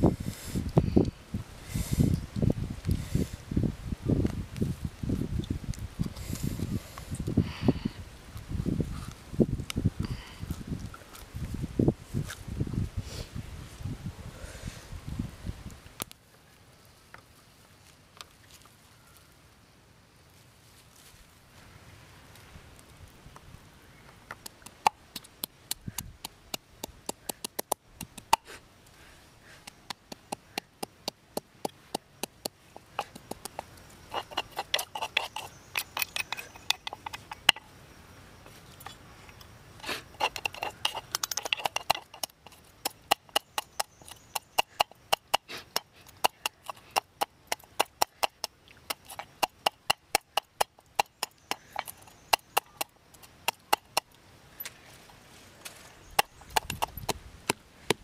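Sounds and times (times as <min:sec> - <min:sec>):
pestle pounding in a mortar: 0:40.2 - 0:54.1, 0:56.2 - 0:58.0.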